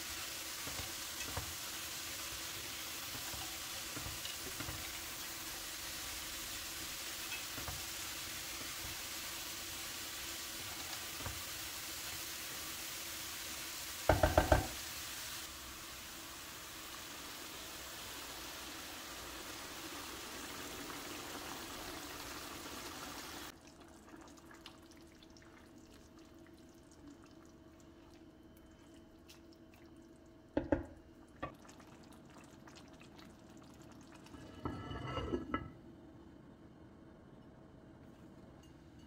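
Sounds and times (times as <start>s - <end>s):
water pouring into pot: 0.0s - 34.6s
pot lid clattering: 34.6s - 35.7s.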